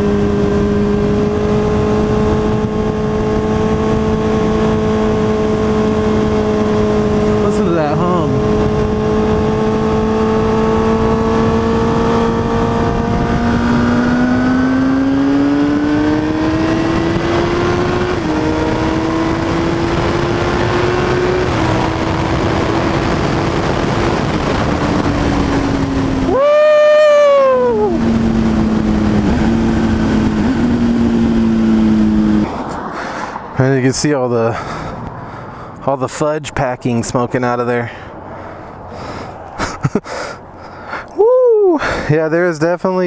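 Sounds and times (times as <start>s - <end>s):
wind noise: 0.0s - 33.6s
motorcycle engine revving: 0.0s - 36.0s.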